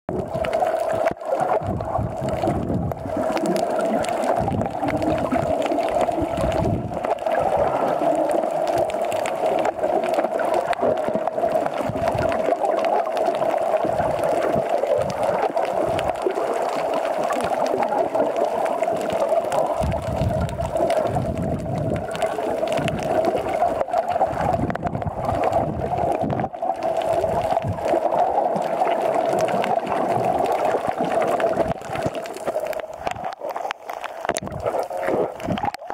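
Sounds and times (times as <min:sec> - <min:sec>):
gurgles and sloshing: 0:00.1 - 0:35.9
muffled underwater water noise: 0:00.1 - 0:35.9.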